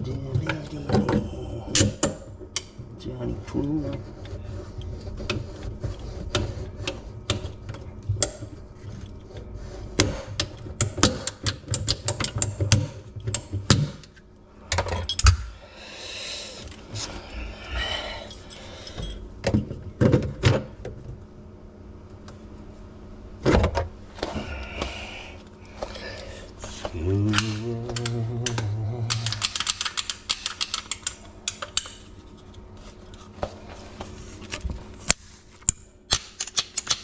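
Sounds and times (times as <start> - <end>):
plastic pipes clicking and knocking: 26.8 - 32.0.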